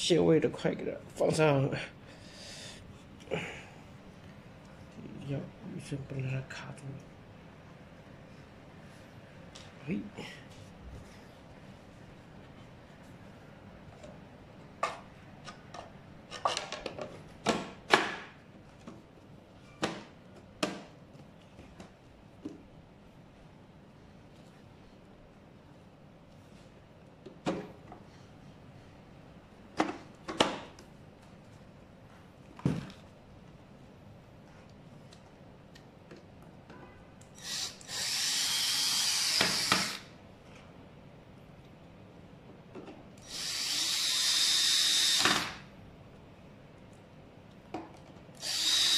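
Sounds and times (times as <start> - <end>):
cordless drill running: 37.4 - 40.1, 43.2 - 45.6, 48.4 - 48.9
drill clicks: 37.4 - 40.1, 43.2 - 45.6, 48.4 - 48.9.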